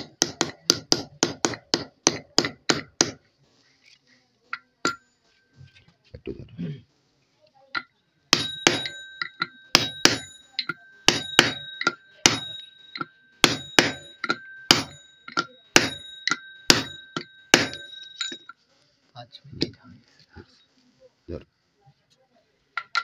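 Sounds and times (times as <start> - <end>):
hammer striking metal gear: 7.8 - 18.5
metal gear ringing: 8.4 - 18.5.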